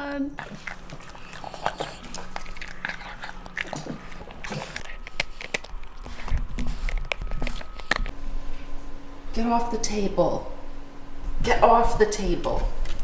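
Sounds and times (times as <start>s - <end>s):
dog chewing wet food: 0.3s - 8.2s
dog gnawing chew stick: 0.4s - 8.2s.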